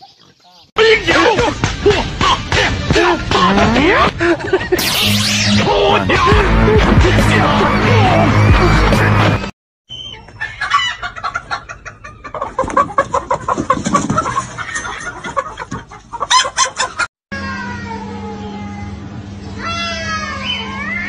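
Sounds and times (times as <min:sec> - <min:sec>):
loud music: 0:00.9 - 0:04.1, 0:04.8 - 0:09.5
chicken clucking: 0:10.0 - 0:17.1.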